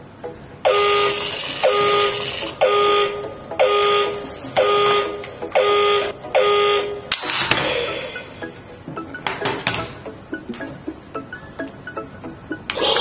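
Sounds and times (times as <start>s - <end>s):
alarm clock buzzing beep: 0.7s - 7.0s.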